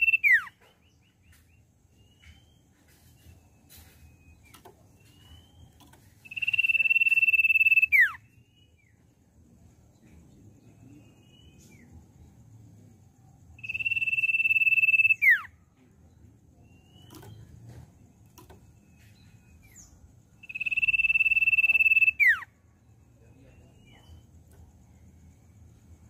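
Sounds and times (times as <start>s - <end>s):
bird whistling high: 0.0s - 0.6s, 6.2s - 8.3s, 13.6s - 15.5s, 20.4s - 22.5s
soft bird chirps: 0.0s - 26.0s.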